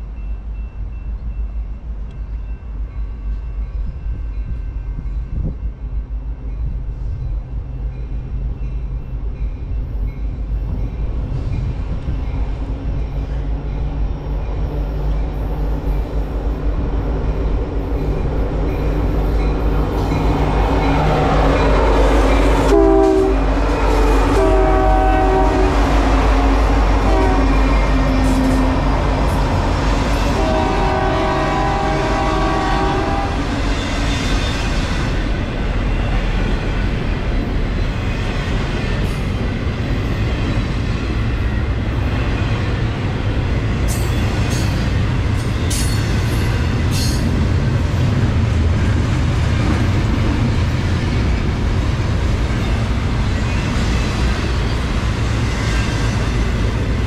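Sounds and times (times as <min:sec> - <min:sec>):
freight train rumbling over rails: 0:00.0 - 0:57.0
train horn: 0:20.5 - 0:29.2, 0:30.2 - 0:33.8.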